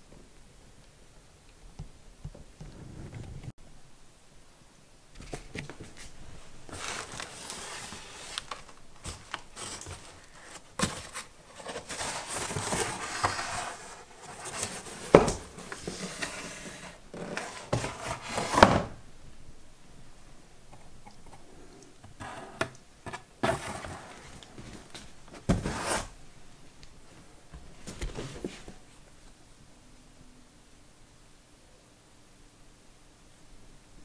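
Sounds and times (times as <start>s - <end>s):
cardboard boxes scraping and rustling: 5.3s - 19.0s, 22.2s - 26.2s, 27.8s - 28.8s.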